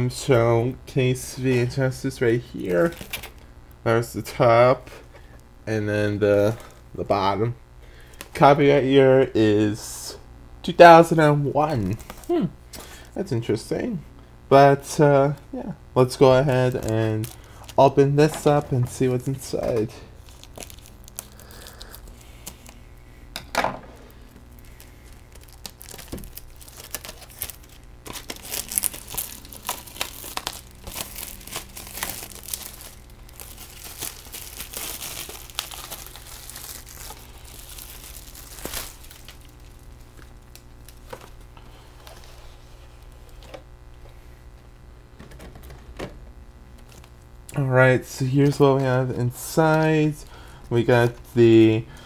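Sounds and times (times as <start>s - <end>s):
packaging tearing and crinkling: 2.8s - 3.4s, 16.4s - 22.8s, 24.0s - 43.6s.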